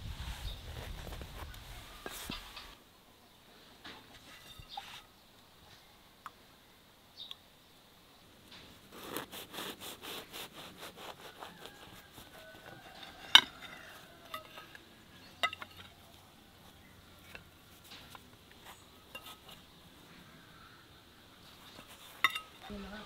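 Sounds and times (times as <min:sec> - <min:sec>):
knife rasping through pie crust: 0:08.9 - 0:14.5.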